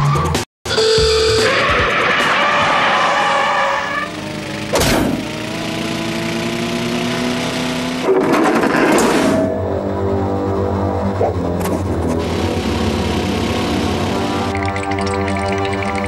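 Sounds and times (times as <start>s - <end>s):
music: 0.0s - 2.7s, 9.4s - 16.0s
sharp cartoon thump: 4.7s - 5.2s.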